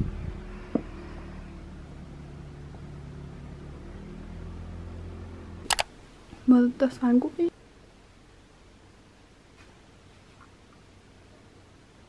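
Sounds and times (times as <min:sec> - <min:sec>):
sharp clicks: 0:05.7 - 0:05.9.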